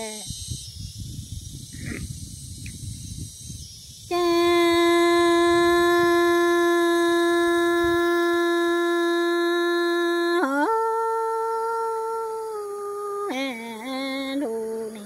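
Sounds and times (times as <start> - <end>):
woman singing long held notes: 4.1 - 15.0.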